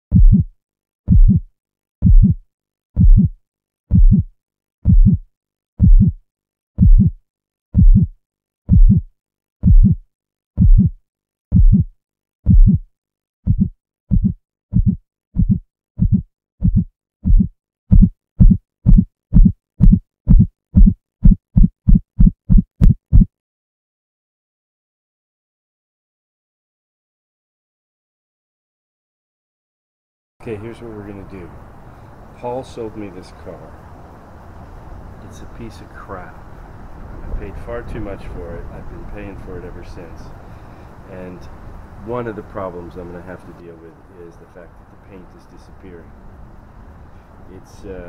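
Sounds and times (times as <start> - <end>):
heartbeat thumps: 0.1 - 0.5, 1.1 - 2.4, 3.0 - 6.2, 6.8 - 7.2, 7.8 - 10.0, 10.6 - 23.3.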